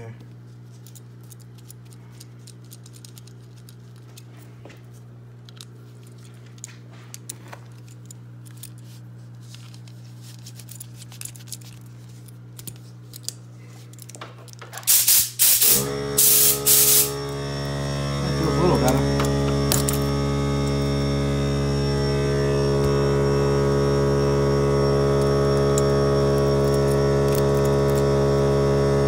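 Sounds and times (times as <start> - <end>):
steady low hum: 0.0 - 29.0
air compressor motor running: 11.8 - 29.0
compressed air blasts: 14.9 - 17.3.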